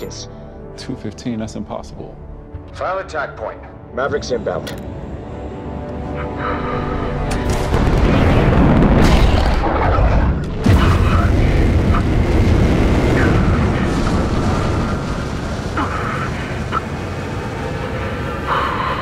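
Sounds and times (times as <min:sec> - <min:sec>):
fighter jet engine roar: 0:06.1 - 0:19.0.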